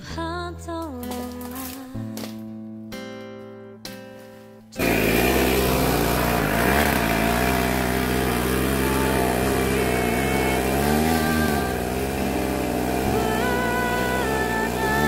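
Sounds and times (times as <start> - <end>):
motorcycle engine pulling under load: 4.8 - 15.0.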